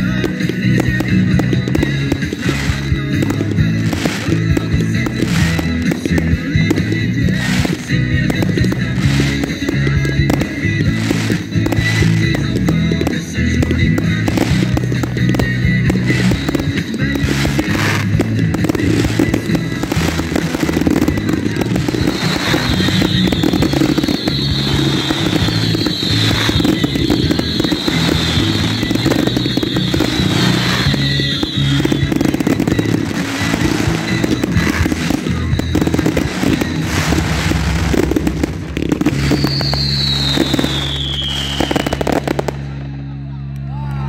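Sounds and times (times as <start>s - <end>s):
fireworks bursting and crackling: 0.0s - 43.2s
music playing: 0.0s - 44.0s.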